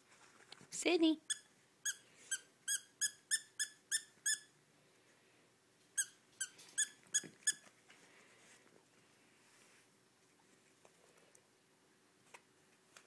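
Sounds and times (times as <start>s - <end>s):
squeaky toy squeaking: 1.2s - 4.6s, 6.0s - 7.6s.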